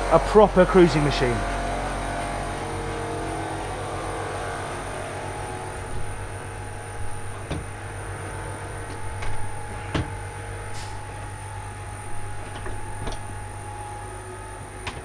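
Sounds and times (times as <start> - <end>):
low machinery hum: 0.0 - 15.0
door knocks and clicks: 7.0 - 7.9, 8.8 - 10.3, 12.1 - 13.5.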